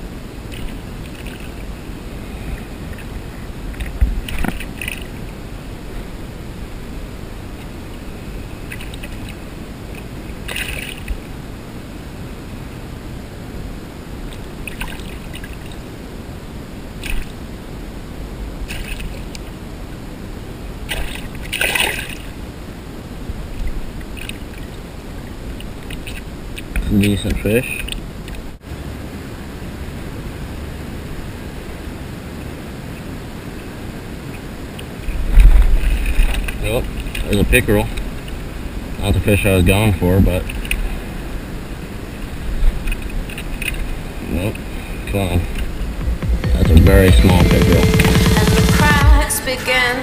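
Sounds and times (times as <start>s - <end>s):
fish splashing in water: 0.5s - 1.7s, 2.4s - 5.2s, 8.6s - 11.3s, 14.3s - 15.8s, 17.0s - 17.4s, 18.6s - 19.3s, 20.8s - 22.4s
steady low rumble: 35.0s - 50.0s.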